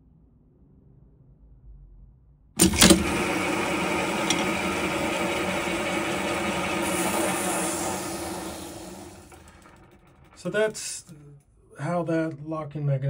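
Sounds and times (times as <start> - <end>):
mechanical running noise: 2.6 - 11.2
sharp clicks: 2.6 - 11.2.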